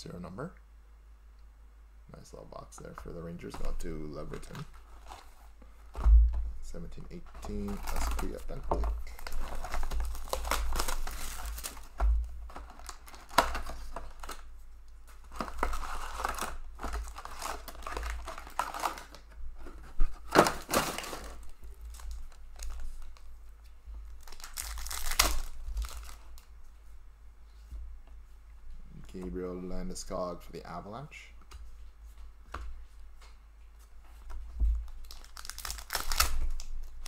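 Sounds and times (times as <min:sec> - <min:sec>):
wrapped packs rustling: 0:03.4 - 0:06.1, 0:06.7 - 0:23.3, 0:24.1 - 0:26.5, 0:34.8 - 0:37.0
plastic shrink wrap crinkling: 0:03.4 - 0:26.6, 0:34.2 - 0:37.0.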